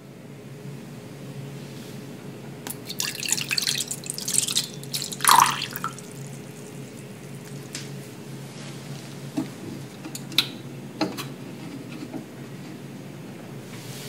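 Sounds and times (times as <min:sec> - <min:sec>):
milk pouring into a saucepan: 0:02.7 - 0:07.7.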